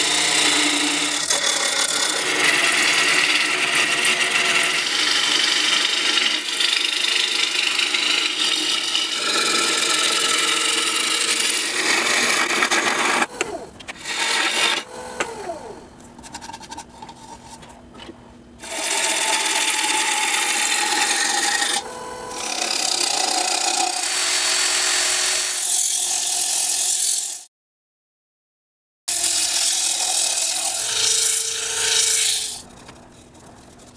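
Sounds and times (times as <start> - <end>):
gouge scraping wood on lathe: 0.0 - 13.3, 13.9 - 14.9, 18.6 - 26.0, 29.2 - 33.9
sandpaper rubbing spinning bowl: 29.6 - 33.9.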